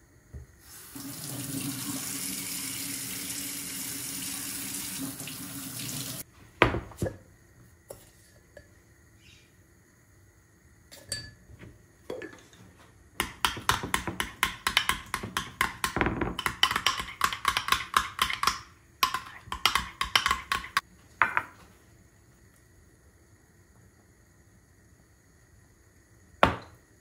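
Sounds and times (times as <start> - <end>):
metal spoon clinking in glass bowl: 10.9 - 11.4.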